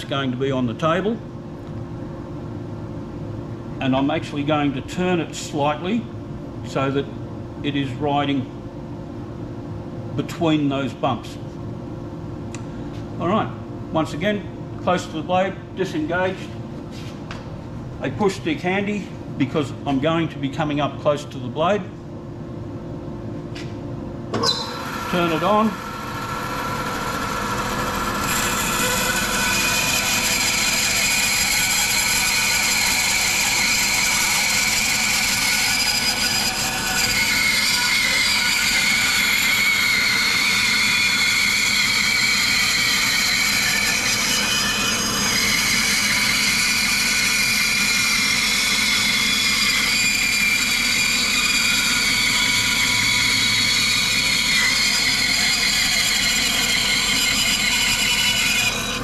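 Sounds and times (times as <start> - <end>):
bandsaw cutting log: 24.6 - 59.0.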